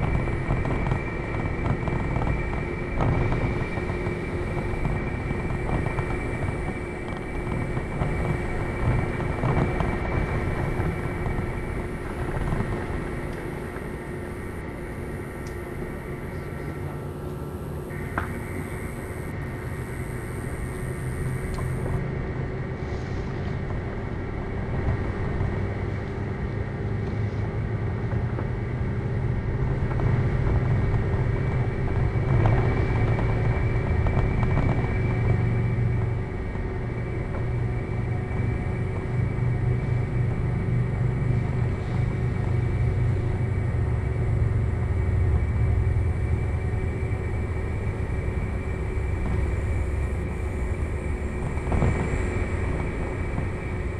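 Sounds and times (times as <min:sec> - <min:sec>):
motor rumbling: 0:00.0 - 0:22.0
steady tonal hum: 0:00.0 - 0:53.9.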